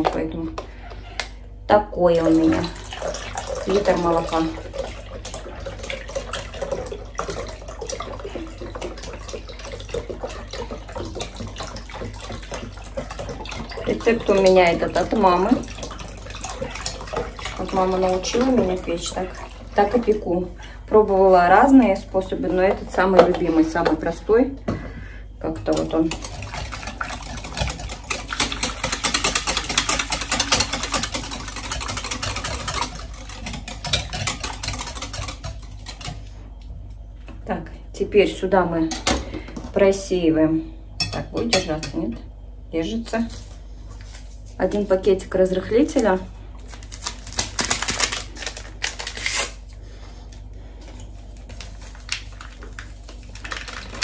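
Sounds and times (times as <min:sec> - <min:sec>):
milk pouring splashing: 0:02.2 - 0:20.9, 0:25.4 - 0:36.3, 0:50.8 - 0:54.0
beater clattering against bowl: 0:25.6 - 0:36.3.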